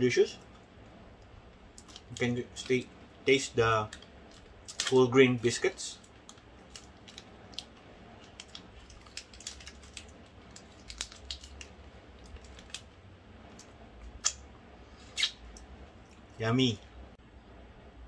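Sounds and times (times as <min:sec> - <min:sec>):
candy wrapper crinkling: 0:01.7 - 0:05.1, 0:06.0 - 0:13.0.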